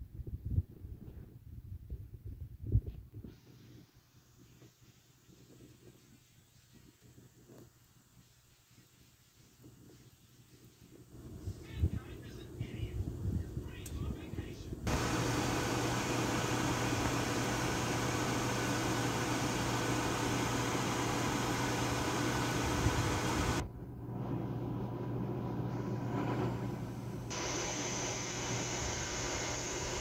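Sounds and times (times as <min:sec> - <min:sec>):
quiet steady hiss: 0:02.7 - 0:14.9
pot of water boiling: 0:14.9 - 0:23.6, 0:24.3 - 0:30.0.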